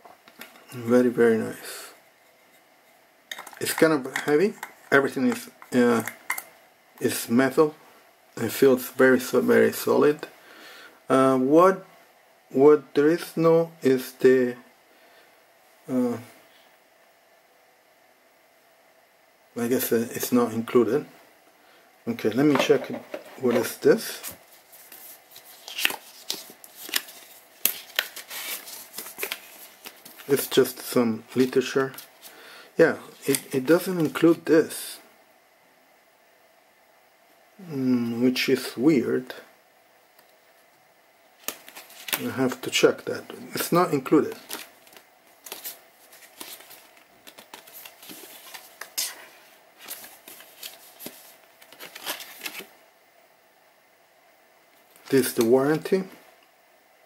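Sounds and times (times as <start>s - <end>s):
paper rustling: 22.7s - 30.5s, 41.4s - 42.3s, 44.3s - 52.7s.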